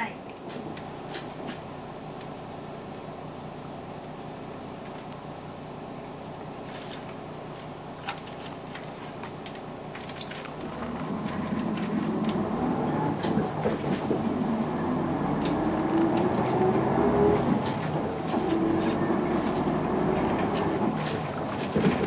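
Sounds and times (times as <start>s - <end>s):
diesel bus engine: 0.0s - 22.0s.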